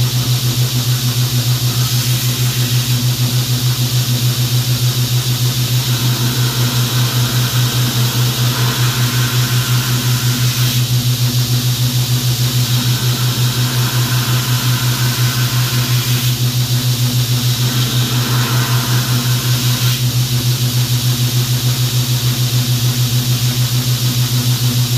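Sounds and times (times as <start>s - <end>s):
belt grinder humming: 5.4s - 20.1s
steel grinding on belt: 5.6s - 10.9s, 12.5s - 16.4s, 17.5s - 20.1s.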